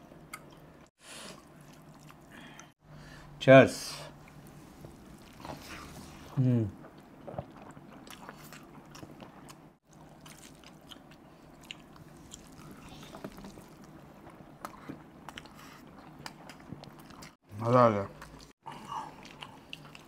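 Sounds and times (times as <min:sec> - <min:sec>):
chewing and mouth clicks: 0:01.6 - 0:02.7, 0:06.9 - 0:17.4.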